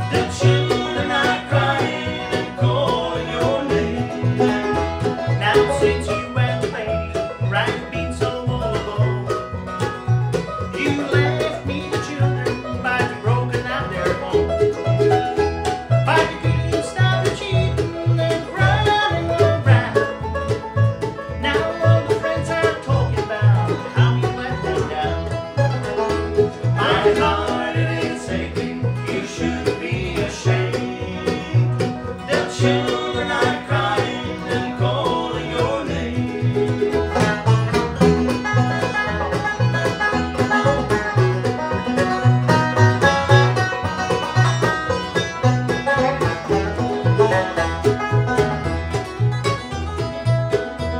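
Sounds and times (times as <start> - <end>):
man singing: 0.0 - 9.4, 10.7 - 14.4, 16.0 - 20.1, 21.4 - 25.4, 26.8 - 37.4
bluegrass band playing: 0.0 - 50.9
upright bass plucking: 0.0 - 50.9.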